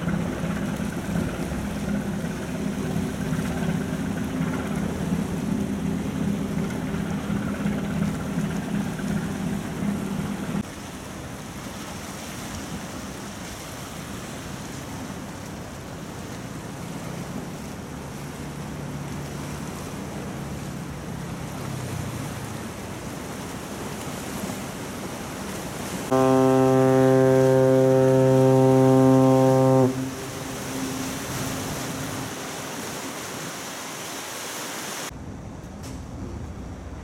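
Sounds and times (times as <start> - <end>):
ship's horn blast: 0.0 - 10.6, 26.1 - 33.5
water washing on shore: 0.0 - 35.1
wind: 0.0 - 37.0.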